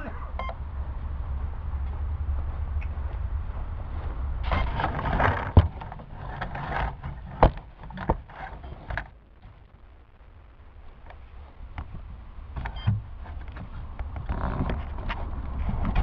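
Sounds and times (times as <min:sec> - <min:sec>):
handling noise rustling and scraping: 0:03.9 - 0:09.6.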